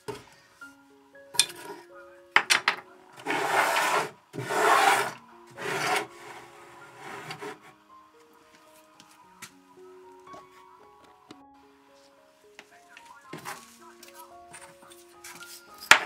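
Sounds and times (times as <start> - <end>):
hand brushing wooden box: 13.4 - 14.3.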